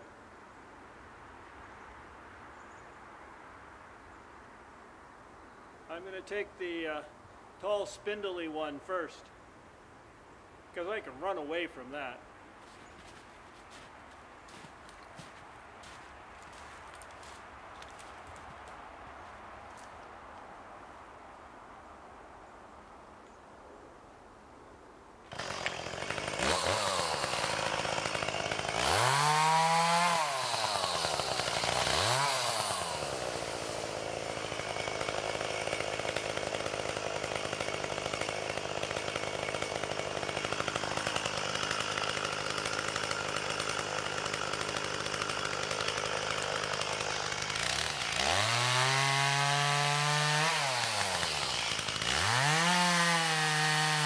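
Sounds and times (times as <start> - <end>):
chainsaw cutting into tree: 25.3 - 54.0
chainsaw engine revving and idling: 25.3 - 54.0.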